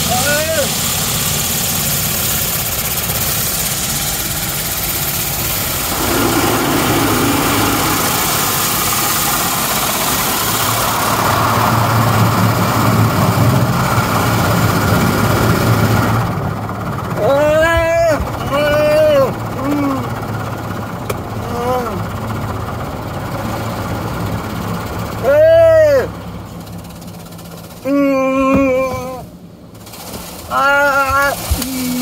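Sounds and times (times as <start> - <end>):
water jets spraying on car: 0.0 - 20.2, 26.2 - 28.2, 29.7 - 32.0
low hum: 2.2 - 17.2.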